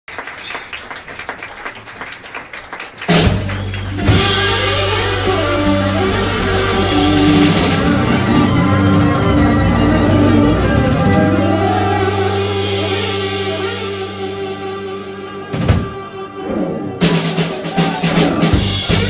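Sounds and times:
blues band playing: 3.0 - 19.0
drums and cymbals: 3.1 - 14.8, 17.0 - 19.0.

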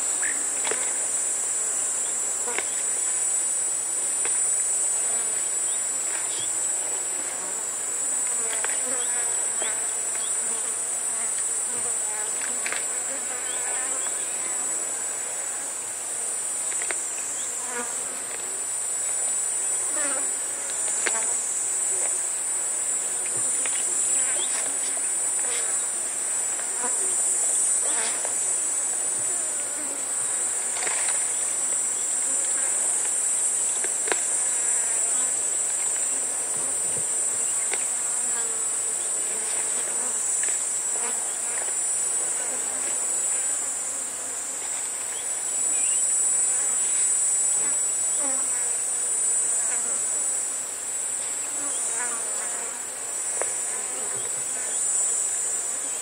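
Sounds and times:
cicada chorus: 0.0 - 56.0
flies buzzing: 0.0 - 56.0.

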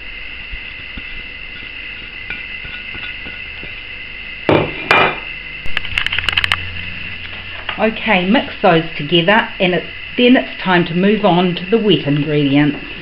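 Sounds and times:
bowls scraping on counter: 1.0 - 3.7
sharp clicks: 5.6 - 6.6.

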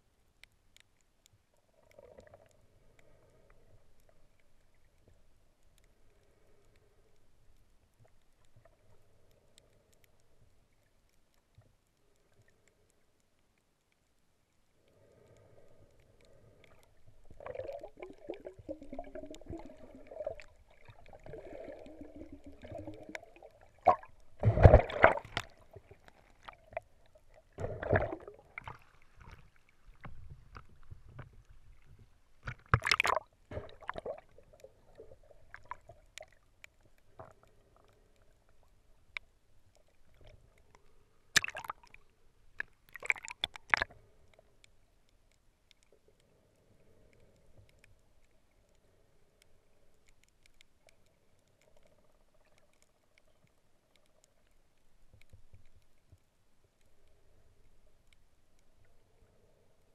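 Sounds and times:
muffled water sloshing: 16.5 - 37.4
sudden water splashes: 23.8 - 25.6, 27.6 - 28.8.

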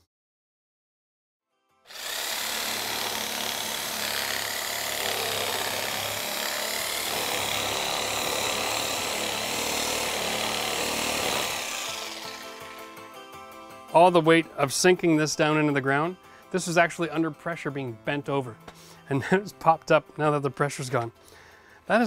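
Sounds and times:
reciprocating saw cutting wood: 1.9 - 13.0.

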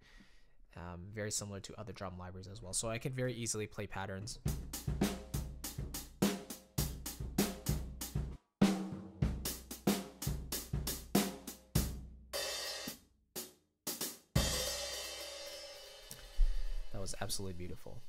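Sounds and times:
drum kit pattern: 4.3 - 18.0.

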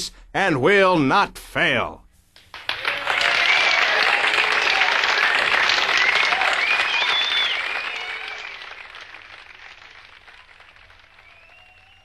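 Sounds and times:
crowd applauding and cheering: 2.4 - 12.0.

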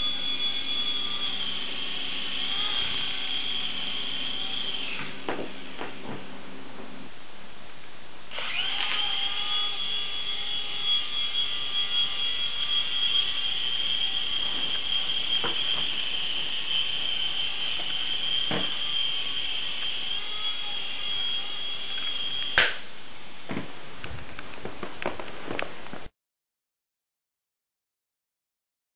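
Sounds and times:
toy helicopter motor whine: 0.0 - 7.0, 8.3 - 22.8.

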